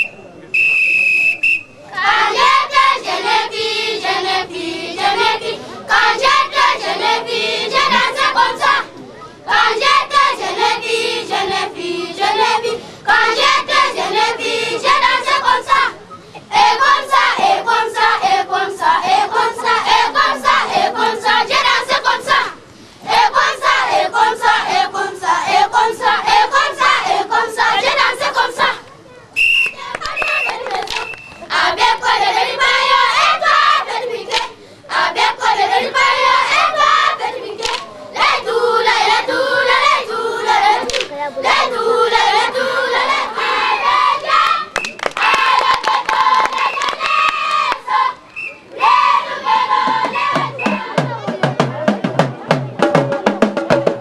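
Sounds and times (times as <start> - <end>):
whistle blowing: 0.0 - 1.8, 29.4 - 31.5, 44.8 - 45.6, 46.6 - 47.0, 48.3 - 49.1, 50.1 - 51.0
children singing and chanting: 1.9 - 29.1, 29.7 - 54.0.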